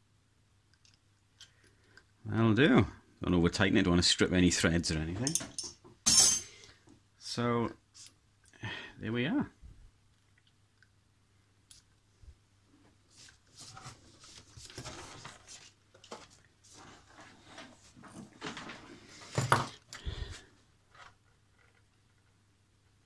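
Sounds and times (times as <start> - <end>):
scraping and light knocks: 12.8 - 19.8.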